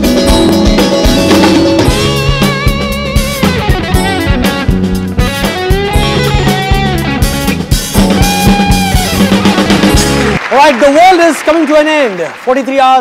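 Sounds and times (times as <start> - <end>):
bass: 0.0 - 10.4
drum kit beat: 0.0 - 10.4
guitar lines: 0.0 - 10.4.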